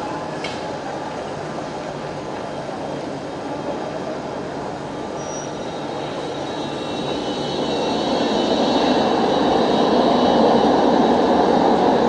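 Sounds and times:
tram rumbling along track: 0.0s - 12.0s
tram wheels squealing: 2.4s - 12.0s.

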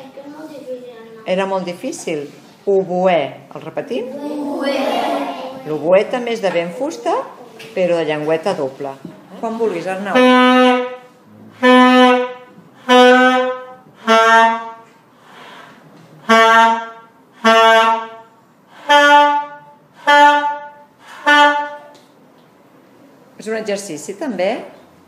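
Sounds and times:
saxophone held notes: 10.1s - 14.8s, 16.2s - 21.9s.

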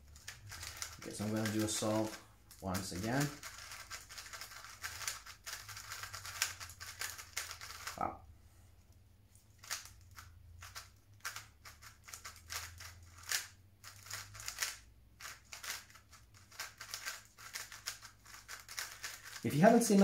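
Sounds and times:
puzzle cube plastic clicks: 0.1s - 8.0s, 9.6s - 19.4s.

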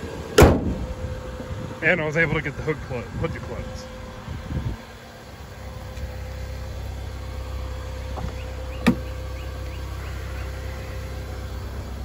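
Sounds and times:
car engine idling: 0.0s - 12.0s
car door latch click: 0.4s - 0.8s.

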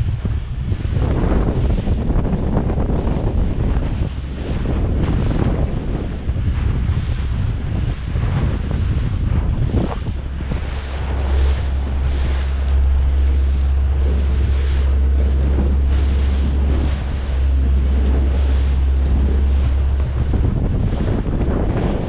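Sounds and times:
sea washing around boat: 0.0s - 22.0s
wind buffeting microphone: 0.0s - 22.0s.

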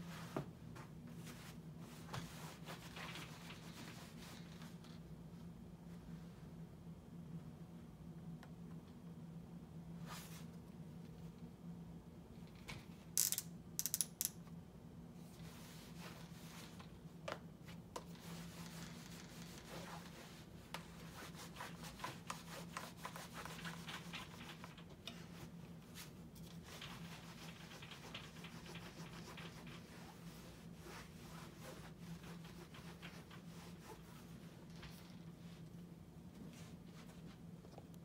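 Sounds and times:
small clicks and knocks: 12.4s - 14.5s
iron rubbing over fabric: 18.1s - 34.7s.

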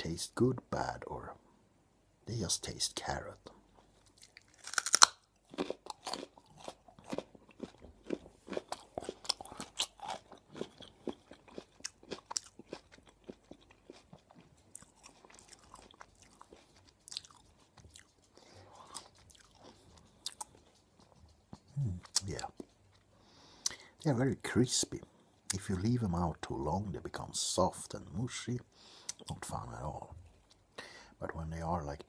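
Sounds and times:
raw carrot crunching: 4.0s - 23.8s.

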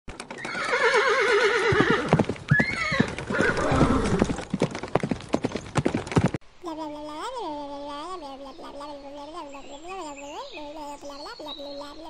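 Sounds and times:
hoofbeats clip-clopping: 0.1s - 6.4s
horse neighing: 0.4s - 4.4s.

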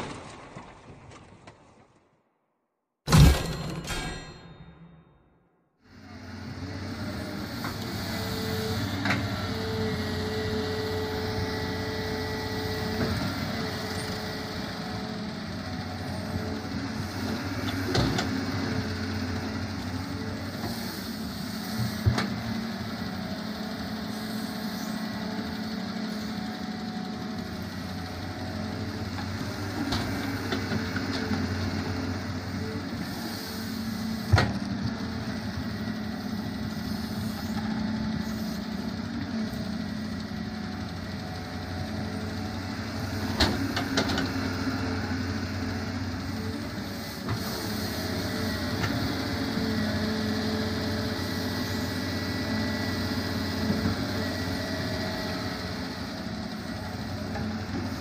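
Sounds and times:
soil and stones dropping into trolley: 0.0s - 2.0s
excavator diesel engine running: 5.8s - 58.0s.

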